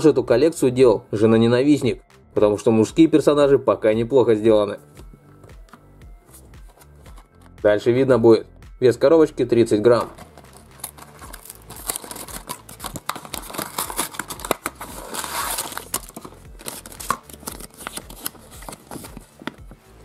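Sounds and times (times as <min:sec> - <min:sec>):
cardboard box opening: 0:10.0 - 0:19.6
packaging crinkling and tearing: 0:10.1 - 0:19.4.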